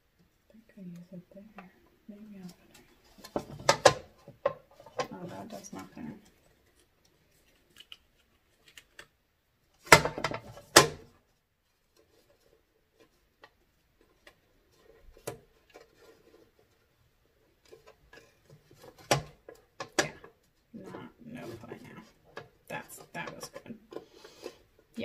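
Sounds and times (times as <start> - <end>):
faint clicks and rubbing: 0.1 - 25.0
plastic plates clattering: 3.1 - 5.1.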